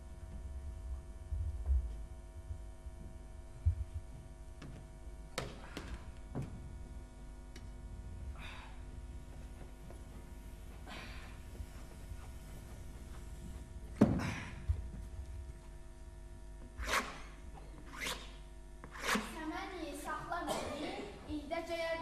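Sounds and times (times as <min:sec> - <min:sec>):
steady low hum: 0:00.0 - 0:22.0
short scraping swishes: 0:16.8 - 0:19.4.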